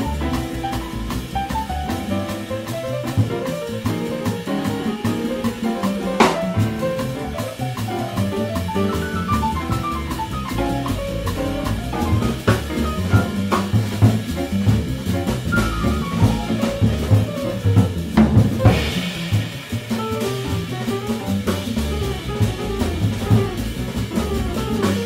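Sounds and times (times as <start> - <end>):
fast melody line: 0.0 - 18.8, 20.0 - 25.0
drum kit with cymbals and snare: 0.0 - 25.0
upright bass: 0.0 - 25.0
cymbal crashes: 18.7 - 20.7.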